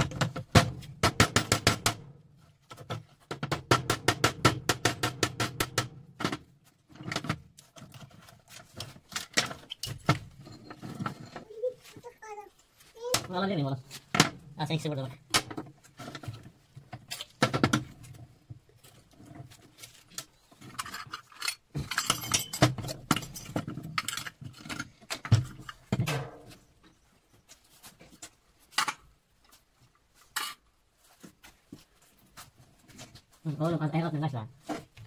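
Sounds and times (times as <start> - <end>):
metal parts and tools clattering: 6.9 - 11.5, 18.9 - 26.6.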